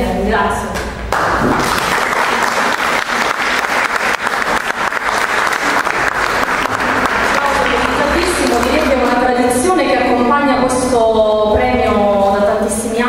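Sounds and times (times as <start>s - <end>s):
audience applauding: 1.1s - 9.4s.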